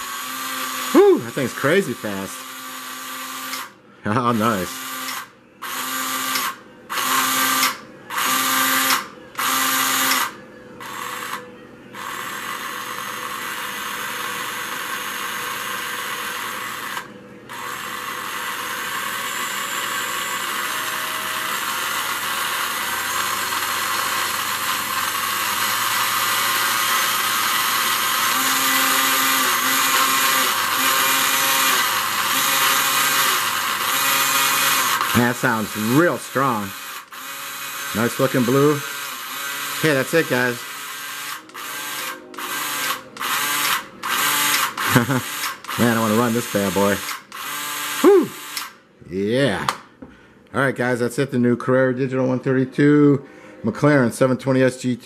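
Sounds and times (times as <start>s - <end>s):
slot car motor whining: 0.0s - 48.8s.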